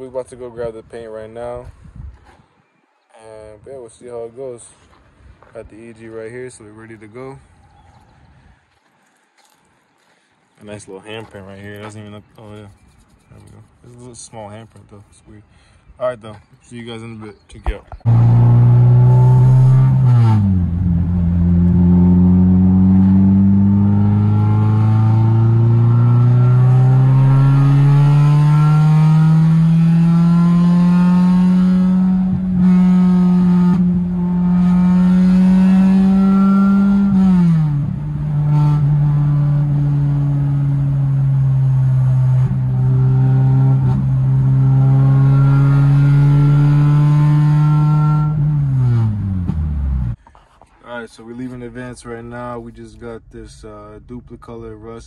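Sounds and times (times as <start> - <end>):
car engine accelerating: 18.1 - 50.2.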